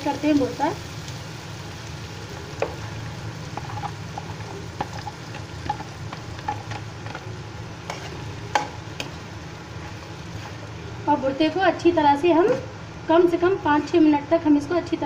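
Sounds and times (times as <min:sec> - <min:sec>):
filling sizzling in hot oil: 0:00.0 - 0:12.5
spatula scraping and tapping pan: 0:03.5 - 0:09.2.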